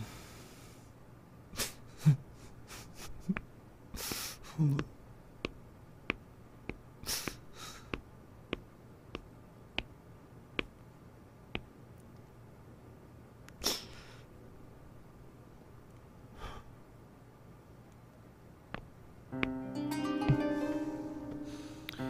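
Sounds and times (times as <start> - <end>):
short breathy hisses: 4.0 - 4.5, 7.0 - 8.0, 13.6 - 14.3
hard-soled footsteps on hard floor: 18.7 - 19.6, 20.2 - 20.6.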